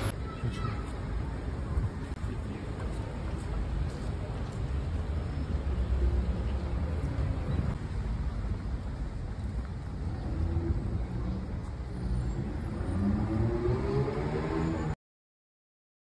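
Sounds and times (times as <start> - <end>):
cars driving past: 4.2 - 15.0
vehicle engine speeding up: 12.1 - 15.0.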